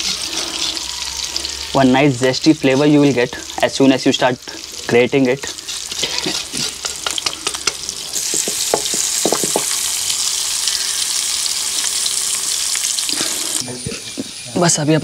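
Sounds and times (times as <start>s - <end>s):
mussels sizzling in oil: 0.0s - 15.0s
metal grater scraping: 5.7s - 7.3s.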